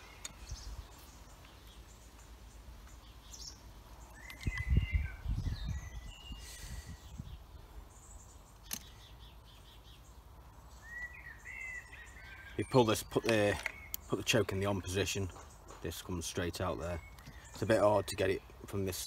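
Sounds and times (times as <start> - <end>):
small birds chirping: 0.0 - 19.0
sharp click: 8.6 - 9.0.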